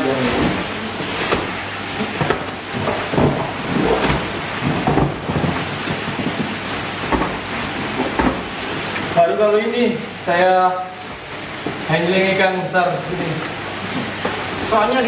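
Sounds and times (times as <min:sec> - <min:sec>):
water sloshing: 0:00.0 - 0:15.0
water splashing: 0:00.0 - 0:15.0.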